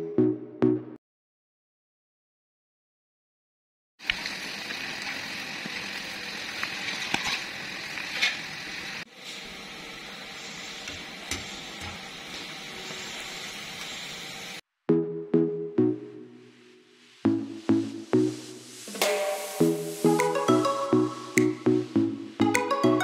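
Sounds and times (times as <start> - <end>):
food deep-frying in oil: 4.0 - 14.6.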